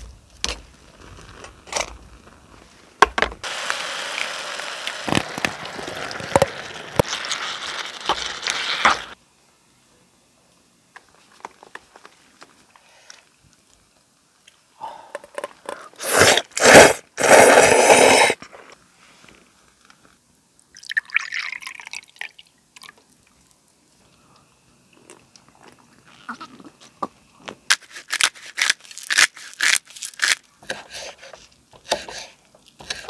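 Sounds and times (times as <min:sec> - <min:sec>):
noodles slurped: 0:16.0 - 0:18.4.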